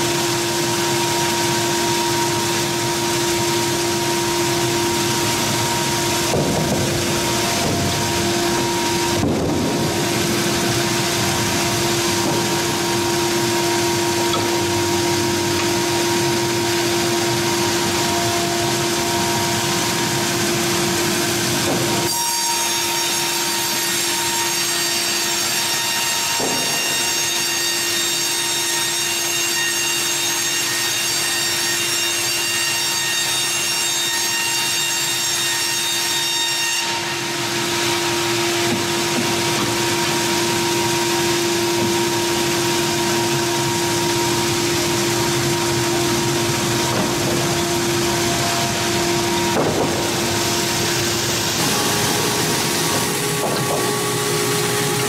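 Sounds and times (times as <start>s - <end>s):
band sawmill sawing through log: 0.2s - 36.0s, 36.8s - 55.0s
high whine: 39.5s - 55.0s.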